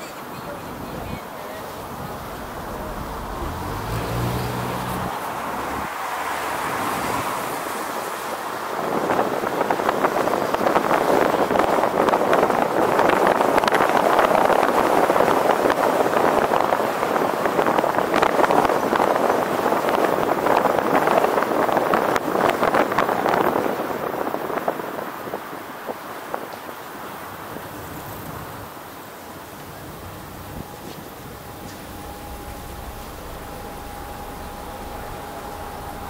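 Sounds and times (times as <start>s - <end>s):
wind buffeting microphone: 0.0s - 28.8s
road noise: 0.0s - 36.0s.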